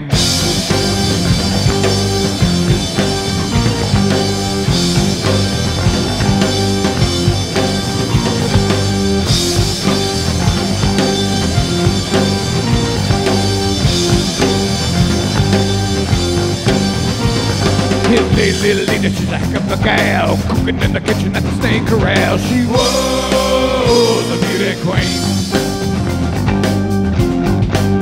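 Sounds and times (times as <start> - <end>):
bass guitar: 0.0 - 28.0
drum kit beat: 0.0 - 28.0
electric guitar: 0.0 - 28.0.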